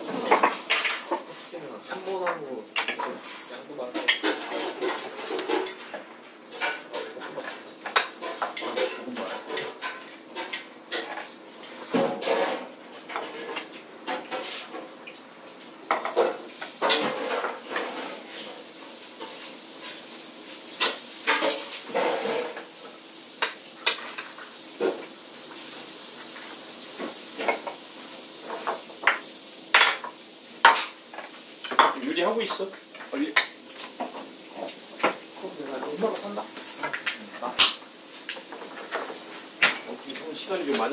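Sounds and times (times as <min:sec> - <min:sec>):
cutlery clinking on plates: 0:20.8 - 0:22.6, 0:28.5 - 0:32.6.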